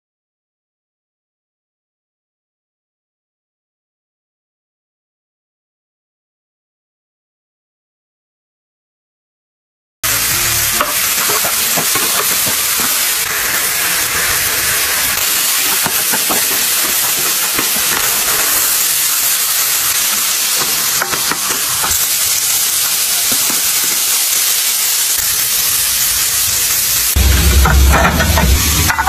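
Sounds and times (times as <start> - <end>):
oil sizzling in frying pan: 10.0 - 29.0.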